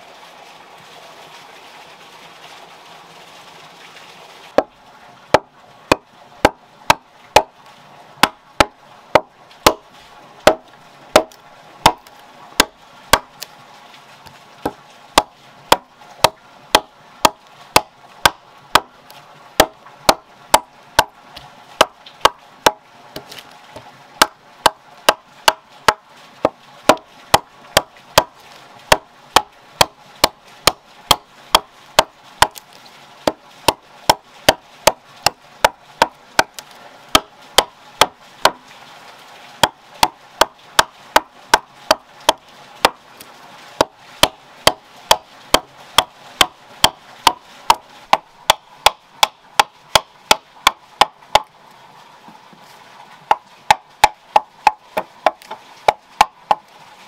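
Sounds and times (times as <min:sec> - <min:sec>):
chopper hacking wooden log: 0:05.3 - 0:07.6, 0:08.2 - 0:09.8, 0:10.4 - 0:13.3, 0:14.6 - 0:18.9, 0:19.6 - 0:21.2, 0:21.8 - 0:23.4, 0:24.2 - 0:32.6, 0:33.2 - 0:38.6, 0:39.6 - 0:43.0, 0:43.8 - 0:51.5, 0:53.3 - 0:56.7
wood chips splitting: 0:08.2 - 0:09.8, 0:10.4 - 0:13.5, 0:21.8 - 0:23.6, 0:24.2 - 0:38.6.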